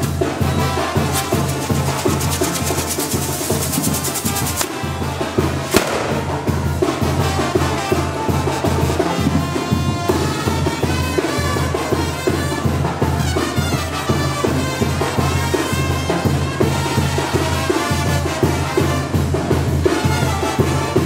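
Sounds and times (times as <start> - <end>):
band music with steady beat: 0.0 - 21.0
fireworks crackling: 0.5 - 7.9
firework bang: 4.2 - 7.0.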